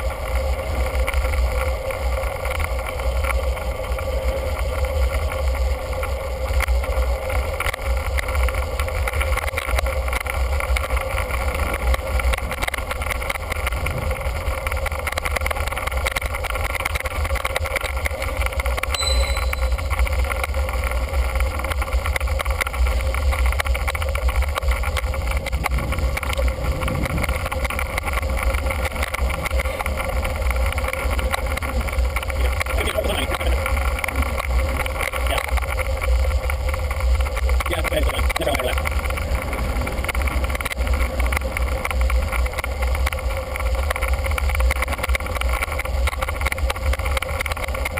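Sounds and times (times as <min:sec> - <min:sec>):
road noise: 0:00.0 - 0:47.9
wind buffeting microphone: 0:13.4 - 0:16.0, 0:25.1 - 0:32.7.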